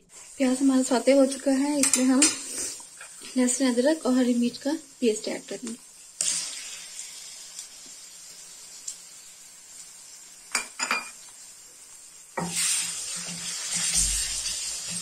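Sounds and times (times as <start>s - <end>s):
onions sizzling in oil: 0.0s - 15.0s
wooden spoon stirring and scraping: 12.4s - 15.0s.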